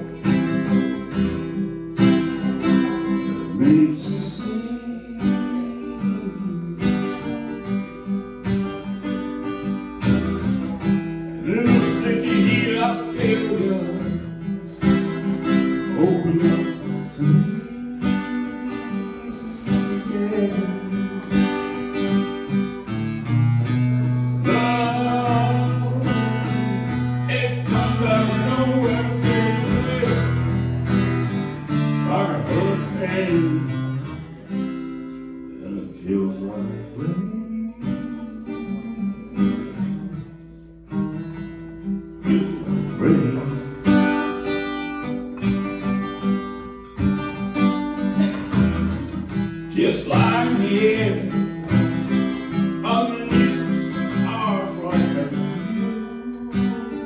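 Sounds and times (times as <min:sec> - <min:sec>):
acoustic guitar strummed: 0:00.0 - 0:57.0
man singing: 0:02.2 - 0:07.8, 0:10.8 - 0:23.0, 0:24.4 - 0:34.6, 0:35.4 - 0:40.4, 0:42.1 - 0:44.2, 0:48.0 - 0:57.0.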